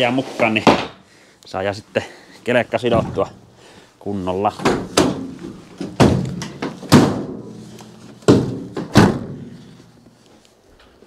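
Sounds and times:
van doors shutting with metal thunks: 0:08.2 - 0:09.5.

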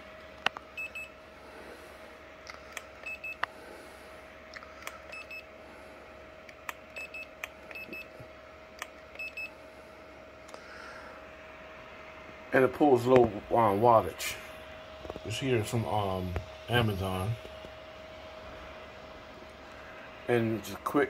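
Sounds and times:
thermometer beeping: 0:00.8 - 0:01.2, 0:03.0 - 0:03.4, 0:05.1 - 0:05.5, 0:06.9 - 0:08.1, 0:09.1 - 0:09.5.

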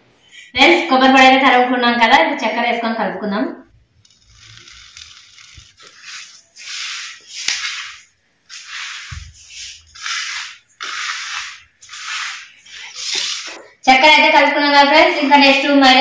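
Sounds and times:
hand rubbing coconut in steel plate: 0:04.0 - 0:13.7.

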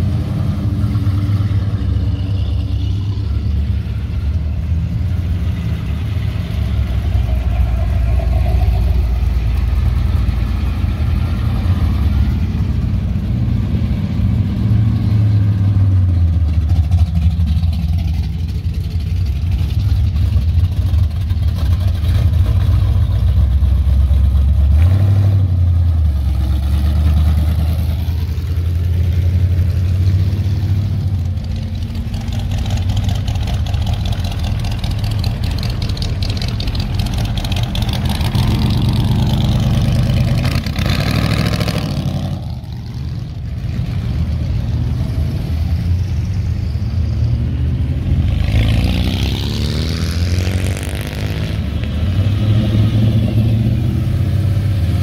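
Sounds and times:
cars driving past: 0:00.0 - 0:55.0
engine revving: 0:23.8 - 0:55.0.

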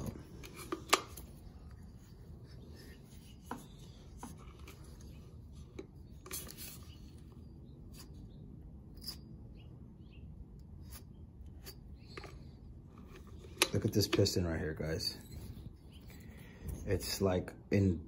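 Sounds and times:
soft handling knocks and rubs: 0:00.0 - 0:07.3.

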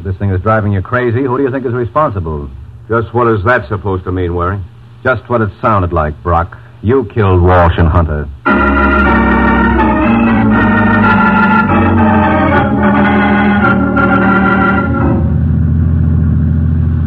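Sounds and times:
dramatic organ chords: 0:08.4 - 0:17.0.

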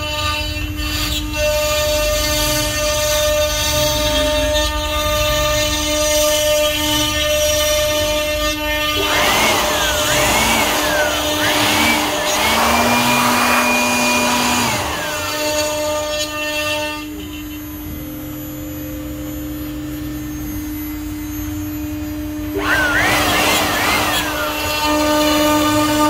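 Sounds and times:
power tool motor whining: 0:08.5 - 0:26.0.

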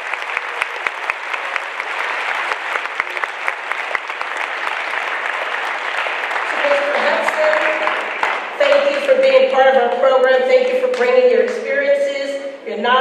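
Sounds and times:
audience applauding: 0:00.0 - 0:09.6
sharp individual claps: 0:00.0 - 0:09.6.

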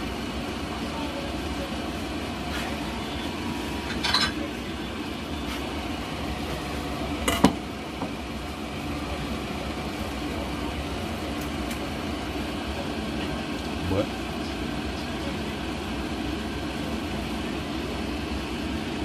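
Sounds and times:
dishes clinking: 0:03.8 - 0:04.5, 0:07.3 - 0:07.6.

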